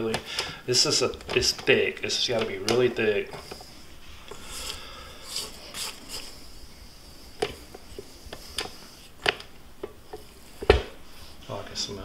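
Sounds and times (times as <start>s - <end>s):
spatula scraping dough: 1.4s - 9.4s.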